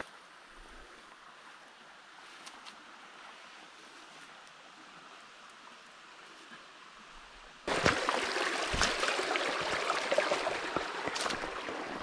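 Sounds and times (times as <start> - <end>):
brook babbling over stones: 2.8 - 12.0
low knocks in water: 8.7 - 9.2.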